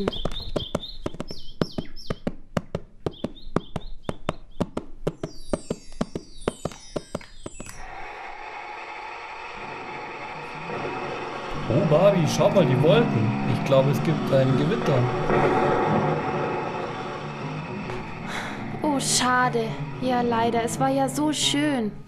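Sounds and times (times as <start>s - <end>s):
horse hooves clip-clopping: 0.0s - 8.0s
birds chirping: 0.0s - 8.1s, 9.6s - 22.0s
steady rushing noise: 7.9s - 21.0s.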